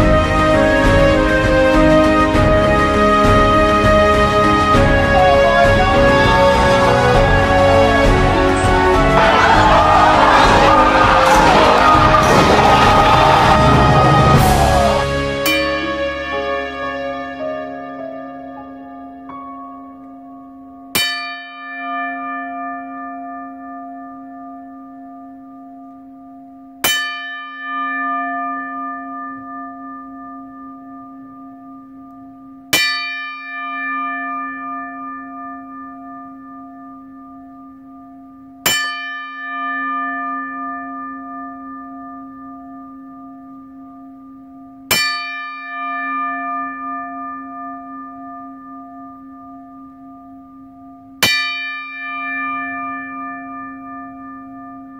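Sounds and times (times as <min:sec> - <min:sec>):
large bell tolling: 0:06.0 - 0:16.7.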